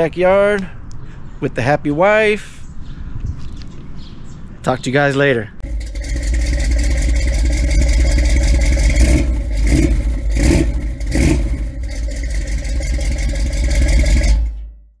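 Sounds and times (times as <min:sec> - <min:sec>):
car engine rumbling and revving: 0:05.6 - 0:15.0.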